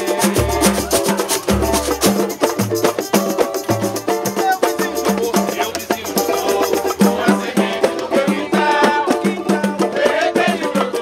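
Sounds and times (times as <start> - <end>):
drum beat: 0.0 - 11.0
tambourines: 0.0 - 11.0
voices singing: 0.0 - 11.0.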